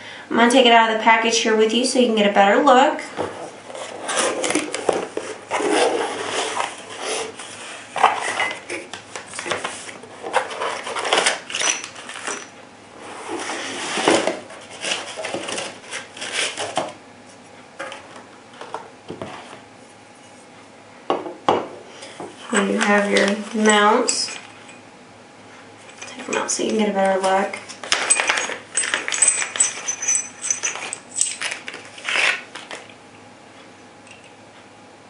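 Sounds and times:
rustling and scraping of parts: 0:03.1 - 0:20.6, 0:22.0 - 0:24.8, 0:25.5 - 0:32.9.

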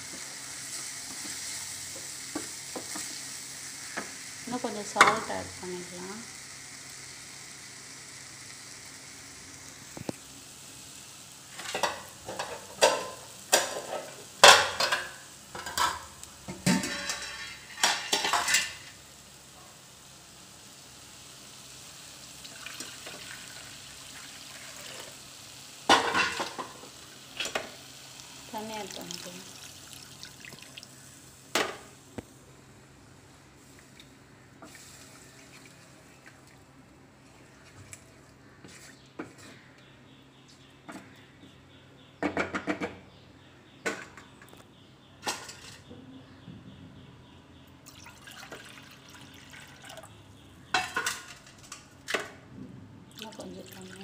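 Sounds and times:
food sizzling: 0:00.0 - 0:38.9, 0:47.8 - 0:52.3, 0:53.2 - 0:54.0
spatula scraping frying pan: 0:16.7 - 0:18.8.

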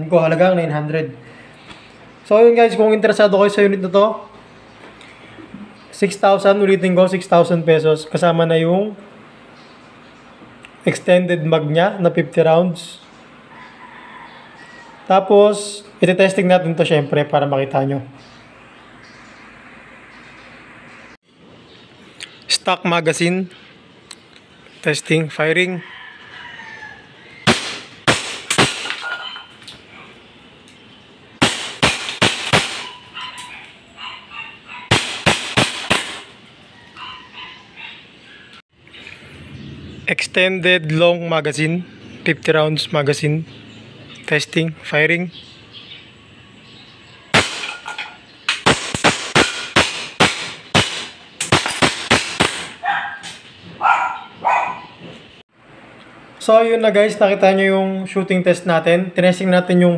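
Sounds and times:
airsoft pistol shots: 0:27.5 - 0:29.0, 0:31.4 - 0:33.0, 0:34.9 - 0:36.4, 0:47.3 - 0:47.8, 0:48.5 - 0:52.8.

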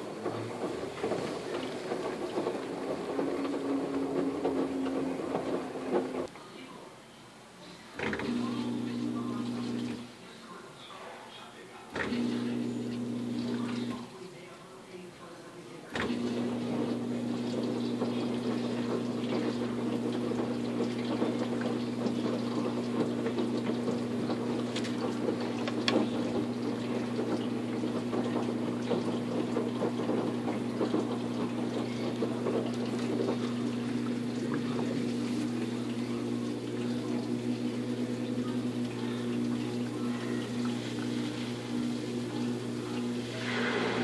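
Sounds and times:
water sloshing in drum: 0:00.0 - 0:06.3, 0:15.9 - 0:44.0
washing machine motor hum: 0:00.0 - 0:06.4, 0:07.8 - 0:10.8, 0:11.8 - 0:44.0.

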